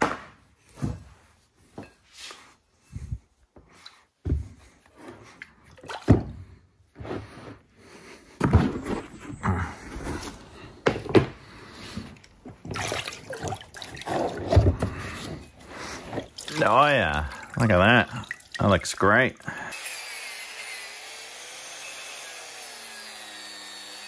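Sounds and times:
liquid sloshing and splashing: 5.2s - 6.4s, 12.5s - 19.5s
water dripping: 12.7s - 14.4s, 16.1s - 19.5s.

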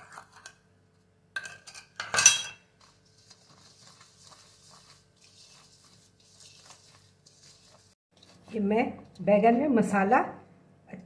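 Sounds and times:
metallic clink on steel bowl: 1.4s - 2.6s
hand mixing paste in bowl: 2.7s - 9.2s.

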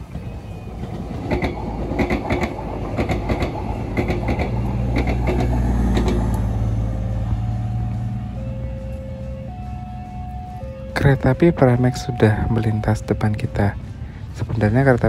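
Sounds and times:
train wheels clacking over track: 0.0s - 9.0s
train engine low hum: 0.0s - 15.0s.

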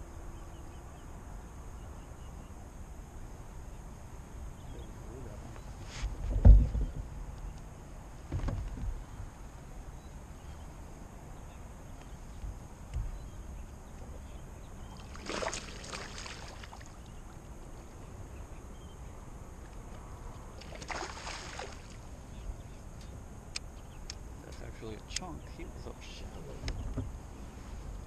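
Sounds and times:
water splashing: 14.9s - 17.1s, 20.6s - 22.0s.

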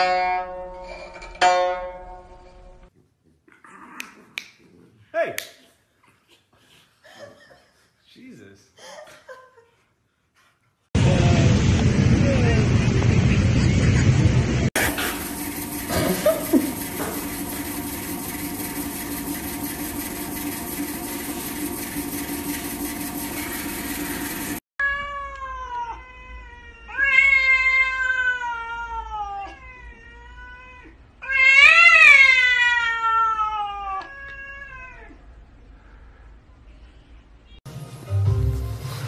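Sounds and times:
robot vacuum humming: 14.8s - 24.6s
cat yowling: 24.8s - 35.2s.

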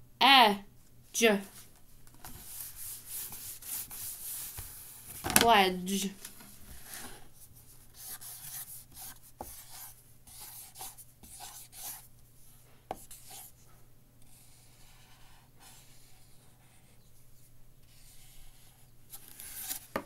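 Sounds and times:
pen scratching on paper: 7.9s - 12.0s, 12.9s - 13.5s, 14.3s - 17.0s, 17.9s - 18.8s.

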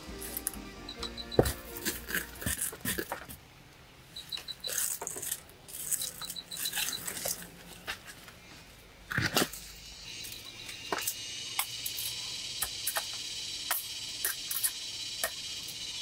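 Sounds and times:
rapid high chirping: 0.0s - 2.6s, 5.9s - 7.2s, 9.7s - 16.0s
stones knocking and scraping: 1.4s - 3.4s.

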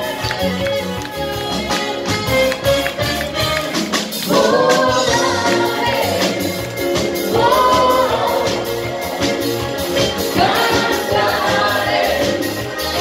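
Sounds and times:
drums: 0.0s - 13.0s
guitar: 0.0s - 13.0s
horns: 0.0s - 13.0s
singers holding long notes: 4.2s - 13.0s.

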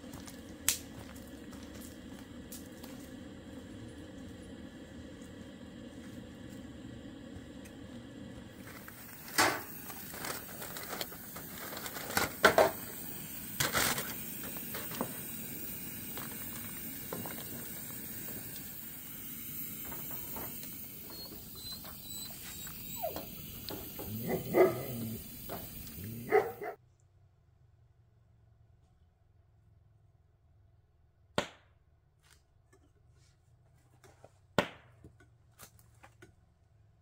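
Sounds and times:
background hiss: 8.6s - 26.7s
dog barking and whining: 21.0s - 26.8s.

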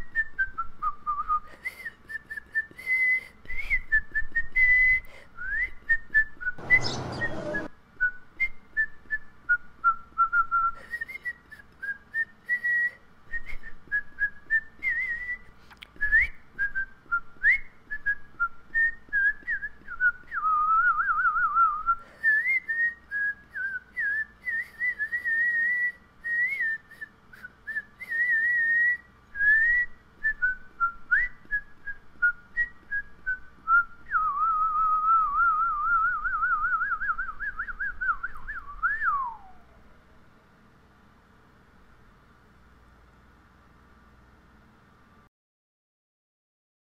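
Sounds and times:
person whistling a melody: 0.0s - 39.8s.

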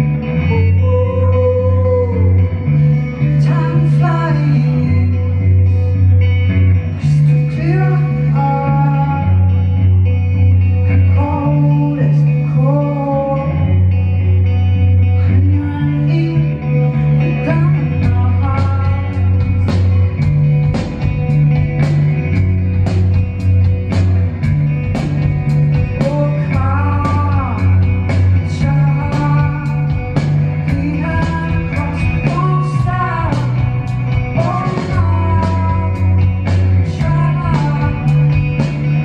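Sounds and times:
bass line: 0.0s - 39.0s
guitar: 0.0s - 39.0s
woman singing: 0.4s - 2.6s, 3.2s - 5.8s, 7.0s - 9.7s, 11.0s - 13.8s, 15.2s - 20.0s, 25.9s - 38.5s
drums with steady beat: 18.0s - 39.0s.

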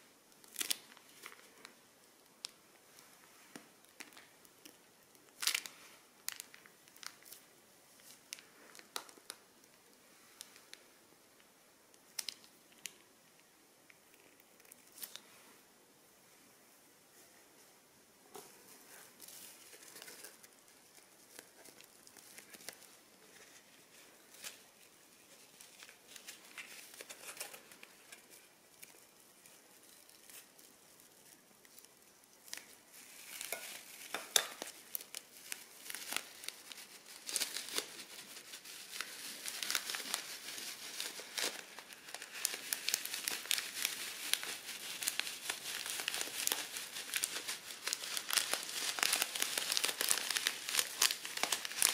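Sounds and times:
crunchy slime crackling: 0.4s - 1.7s, 3.8s - 9.7s, 19.2s - 51.9s.

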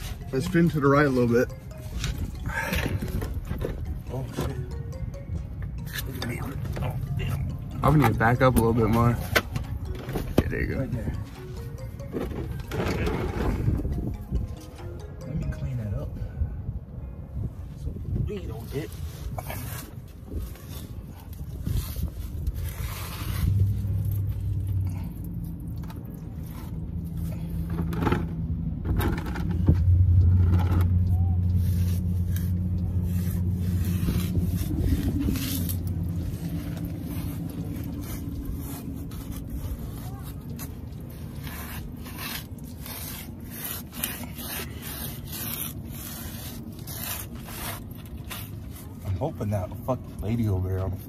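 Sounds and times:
vehicle engine humming: 0.0s - 51.0s
knocks and scrapes: 25.8s - 31.0s
cloth rag scrubbing concrete: 31.6s - 51.0s.

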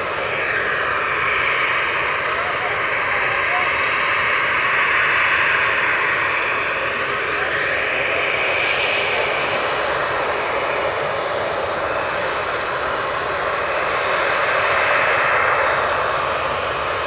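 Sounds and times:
jet engine whine: 0.0s - 17.0s.

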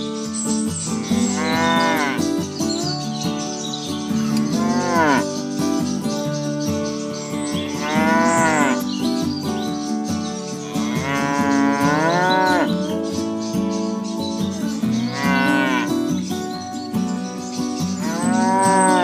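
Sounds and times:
cattle mooing: 1.0s - 2.3s, 4.3s - 5.5s, 7.7s - 8.9s, 10.6s - 12.7s, 14.9s - 16.0s, 18.0s - 19.0s.

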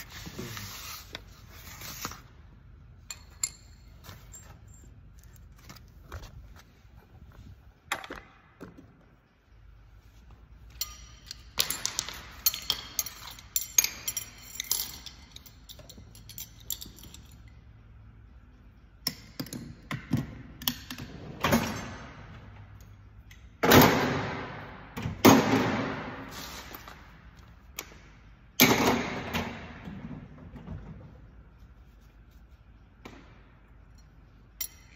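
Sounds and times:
metal tools clinking and rattling: 3.0s - 6.1s, 10.7s - 17.7s, 33.9s - 34.9s.

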